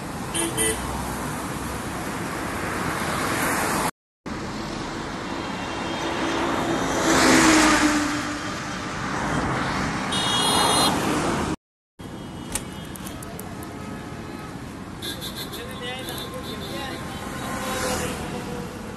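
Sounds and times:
highway traffic noise: 0.0 - 18.9
vehicle passing close by: 4.8 - 11.6, 17.2 - 18.9.

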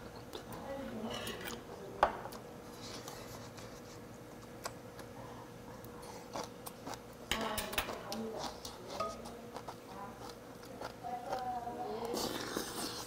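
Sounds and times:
person eating: 2.3 - 7.2, 8.1 - 13.0.

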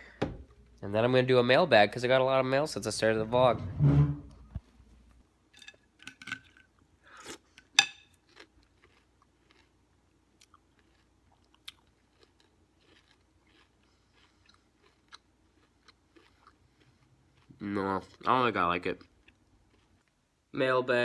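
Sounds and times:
person chewing crunchy cereal: 6.4 - 20.2.

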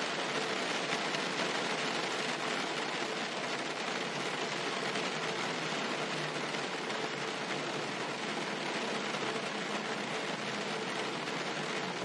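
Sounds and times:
rain on car roof: 0.0 - 12.0.

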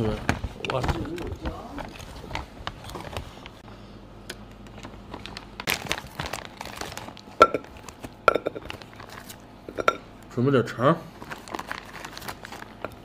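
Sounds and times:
packaging crinkling and rustling: 0.0 - 3.6, 4.6 - 9.4, 11.1 - 13.0.

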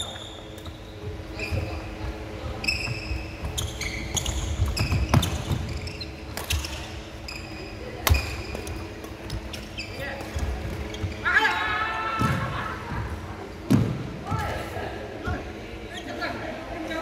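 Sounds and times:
shoes squeaking on floor: 0.0 - 11.5.

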